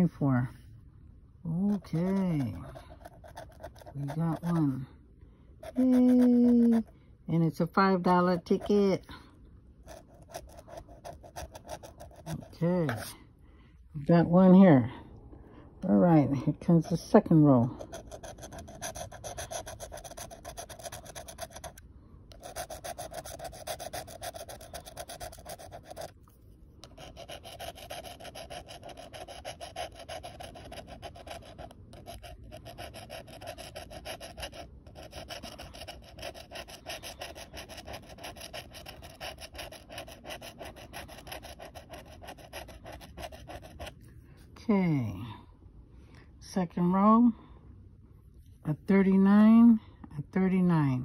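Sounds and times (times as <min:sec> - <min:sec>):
lottery ticket being scratched: 0:01.5 - 0:04.8, 0:05.6 - 0:09.1, 0:09.9 - 0:13.2, 0:16.7 - 0:44.0.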